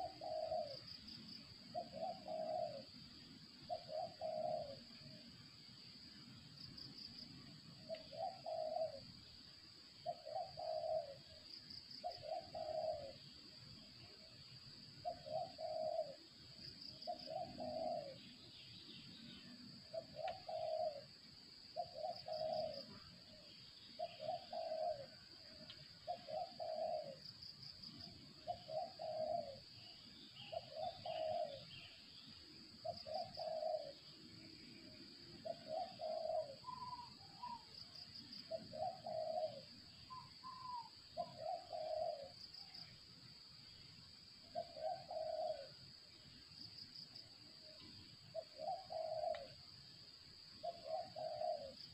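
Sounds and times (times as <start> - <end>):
dove cooing: 0.0 - 1.0, 1.7 - 3.0, 3.6 - 5.2, 7.8 - 9.1, 10.0 - 11.4, 12.0 - 13.4, 15.0 - 16.2, 17.0 - 18.4, 19.9 - 21.2, 21.8 - 23.0, 24.0 - 27.2, 27.9 - 31.9, 32.8 - 34.1, 35.4 - 42.4, 44.4 - 45.9, 48.3 - 49.6, 50.6 - 51.9
higher bird calls: 30.4 - 32.0, 35.4 - 37.7, 38.4 - 42.3.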